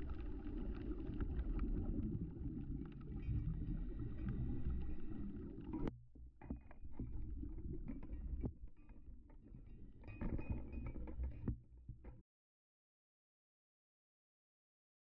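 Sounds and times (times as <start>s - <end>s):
muffled underwater rumble: 0.0s - 12.2s.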